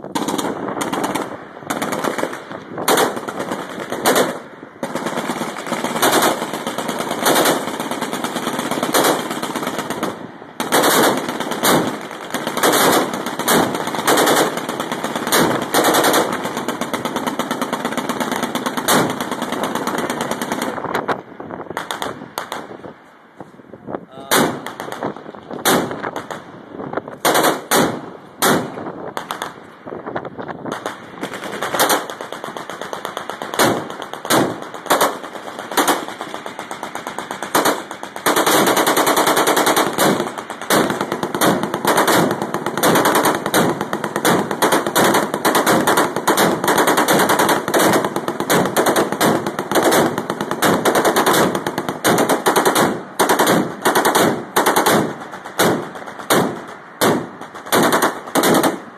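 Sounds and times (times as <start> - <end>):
machine gun bursts: 0.2 - 20.7, 32.7 - 58.8.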